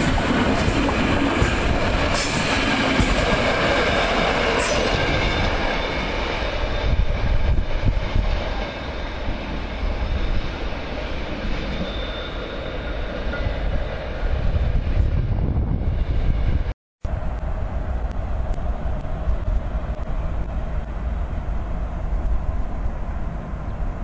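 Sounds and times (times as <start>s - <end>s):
high train wheel screeches: 0.0s - 15.0s
train wheels rumbling on rails: 0.0s - 24.0s.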